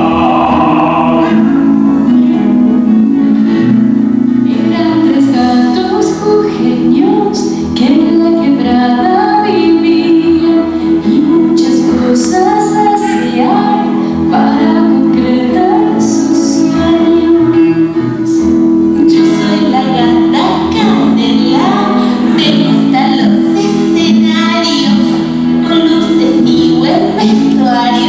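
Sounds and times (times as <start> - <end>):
instrumental accompaniment: 0.0 - 4.7
woman singing: 4.5 - 18.0, 19.0 - 28.0.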